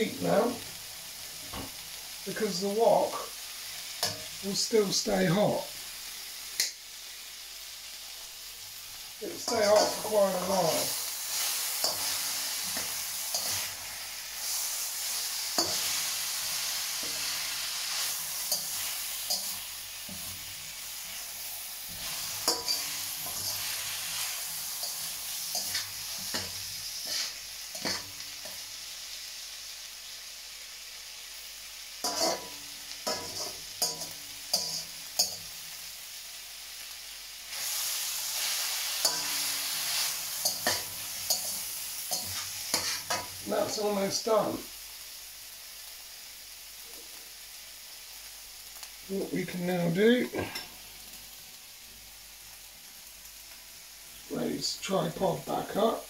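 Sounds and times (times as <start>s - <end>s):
stir fry sizzling in a wok: 0.0s - 56.0s
metal spatula scraping a wok: 9.4s - 28.6s, 32.0s - 35.5s, 37.5s - 43.7s.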